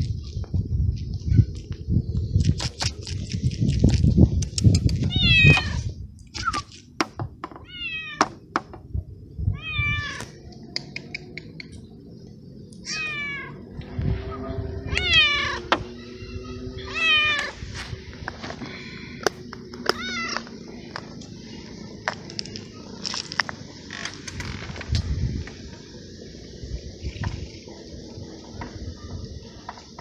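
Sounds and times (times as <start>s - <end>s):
cat meowing loudly: 5.1s - 5.9s, 7.6s - 8.2s, 9.5s - 10.3s, 12.9s - 13.6s, 14.8s - 17.5s, 19.9s - 20.4s.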